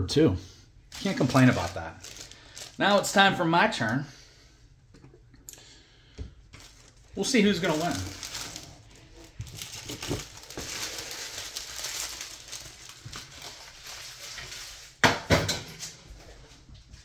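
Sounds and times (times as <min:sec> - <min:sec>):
foil packs crinkling: 0:00.9 - 0:04.1, 0:06.5 - 0:15.0.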